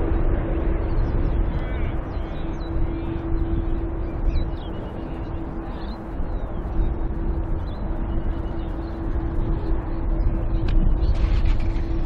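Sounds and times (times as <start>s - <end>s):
faint steady hum: 0.0s - 12.0s
jet engines rumbling: 0.0s - 12.0s
birds chirping: 0.9s - 11.4s.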